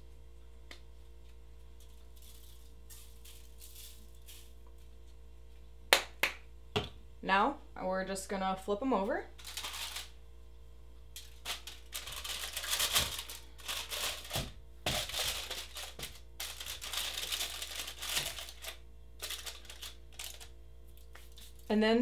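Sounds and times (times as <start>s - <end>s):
aluminium foil crinkling: 1.8s - 4.7s, 9.4s - 10.2s, 11.2s - 21.7s.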